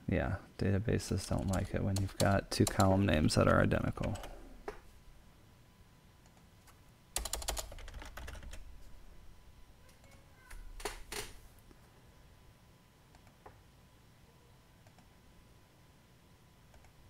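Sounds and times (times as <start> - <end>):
keyboard typing: 1.3 - 4.4, 7.2 - 8.6.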